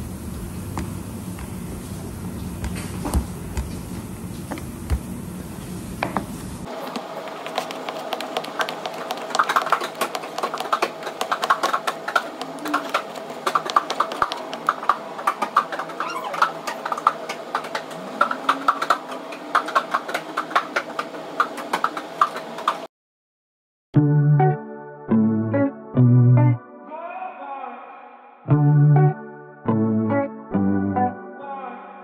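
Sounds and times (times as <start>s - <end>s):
dough being handled: 0.8s - 10.8s
rolling pin tapping on board: 6.9s - 11.8s.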